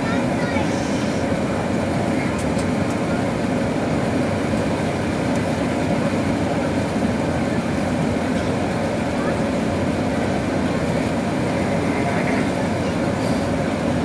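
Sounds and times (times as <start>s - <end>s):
airflow over fuselage: 0.0s - 14.0s
jet engine roar in cabin: 0.0s - 14.0s.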